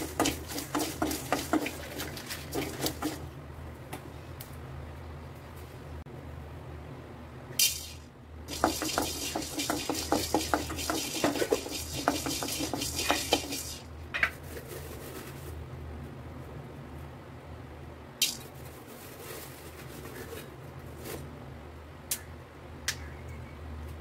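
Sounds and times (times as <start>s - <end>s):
peppercorns rattling in metal pan: 7.6s - 13.8s
spatula scraping pan: 8.5s - 13.8s.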